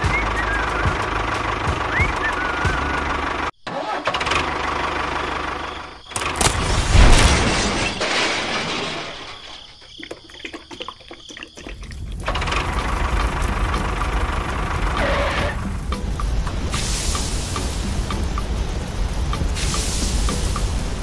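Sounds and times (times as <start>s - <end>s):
engine-like rumble: 0.0s - 9.6s, 11.7s - 21.0s
sharp cracks: 6.1s - 9.9s
loud crash with breaking: 6.2s - 9.9s.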